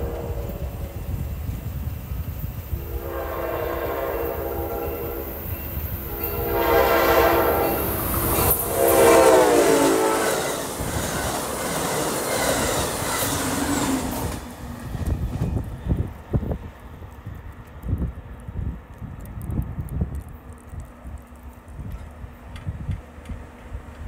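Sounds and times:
train horn blasts: 0.0 - 0.8, 2.7 - 10.7
train wheels clattering over rail joints: 9.9 - 16.1.

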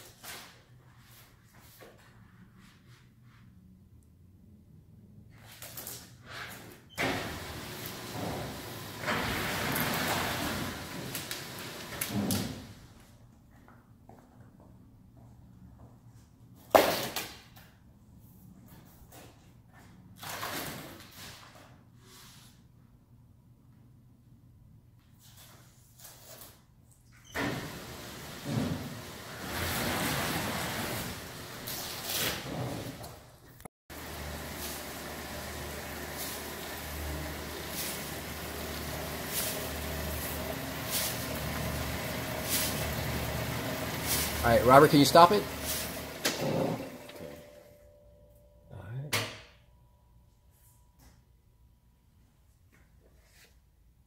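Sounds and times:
rollers and pulleys turning: 7.1 - 12.3, 27.4 - 33.2, 34.0 - 47.7
plastic sheet rustling: 28.0 - 33.0
machine humming: 33.9 - 47.7.

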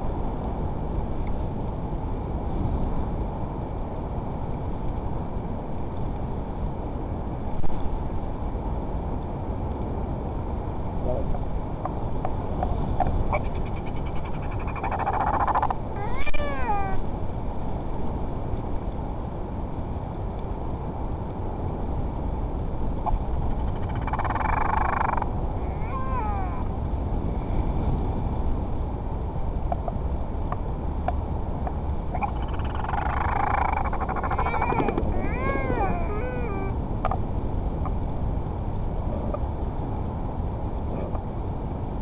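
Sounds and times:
wind noise on microphone: 0.0 - 42.0
albatrosses calling: 13.3 - 17.0, 23.5 - 26.7, 32.1 - 36.8.

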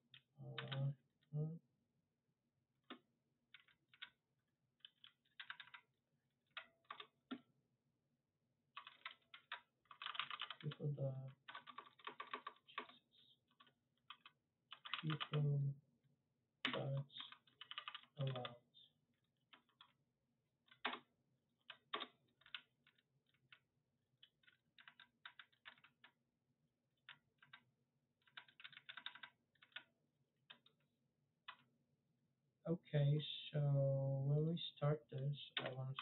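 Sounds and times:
keyboard typing clicks: 14.1 - 15.4, 16.7 - 18.5.

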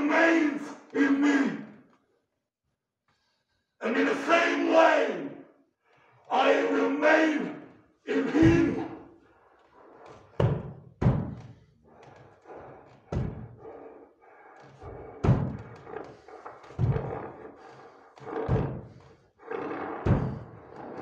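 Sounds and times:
heavy ringing thuds: 20.1 - 20.5.

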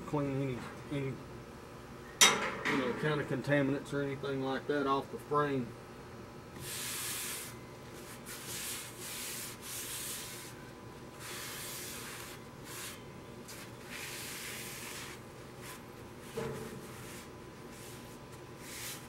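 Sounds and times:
paper towel rubbing on metal: 6.6 - 10.6, 11.2 - 19.0.

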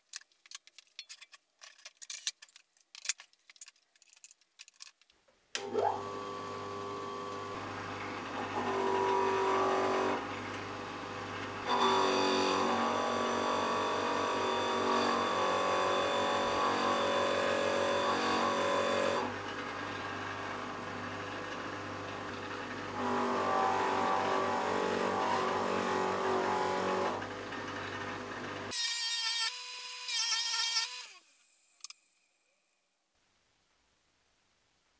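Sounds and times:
bench grinder motor running: 5.6 - 10.2, 11.6 - 28.7.

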